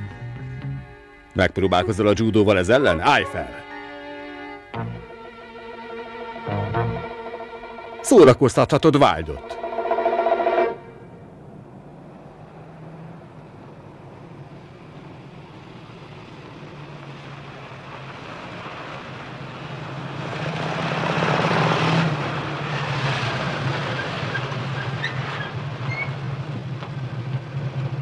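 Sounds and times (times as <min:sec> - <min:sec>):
vehicle engines humming: 0:00.0 - 0:28.0.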